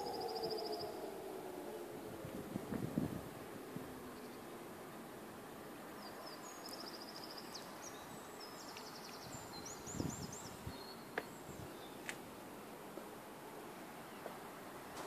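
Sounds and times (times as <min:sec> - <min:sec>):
songbird chirping and trilling: 0:00.0 - 0:02.0, 0:04.0 - 0:04.6, 0:05.9 - 0:12.2
outdoor background noise: 0:00.0 - 0:15.0.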